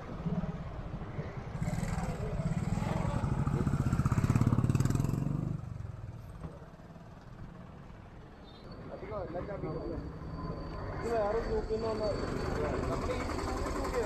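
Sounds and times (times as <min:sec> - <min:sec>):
street noise: 0:00.0 - 0:14.0
small vehicle engine passing: 0:01.2 - 0:07.0.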